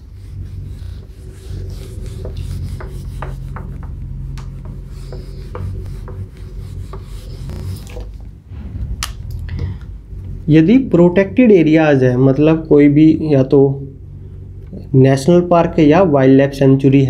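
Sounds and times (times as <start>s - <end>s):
cloth rubbing whiteboard: 0.0s - 8.7s.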